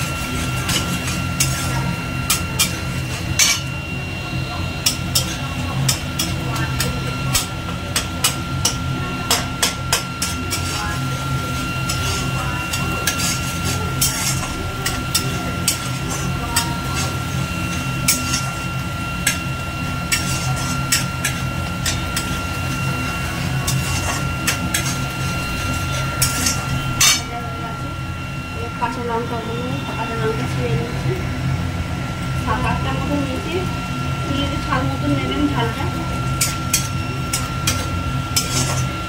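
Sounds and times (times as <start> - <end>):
metal spatula scraping a pan: 0.0 - 3.8, 4.8 - 27.3, 36.4 - 39.0
steady low hum: 0.0 - 39.0.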